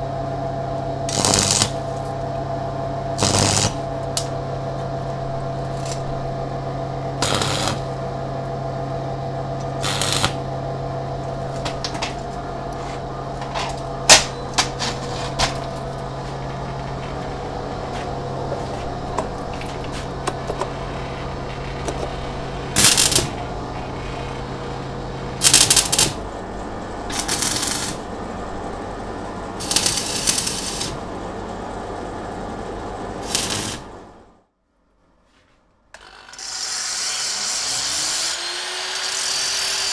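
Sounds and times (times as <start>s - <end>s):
welding machine humming: 0.7s - 34.4s
welding crackling bursts: 1.1s - 1.9s, 3.2s - 4.3s, 7.2s - 7.9s, 9.8s - 10.4s, 19.4s - 23.4s, 25.4s - 26.2s, 27.1s - 28.1s, 29.6s - 31.0s, 33.2s - 33.9s.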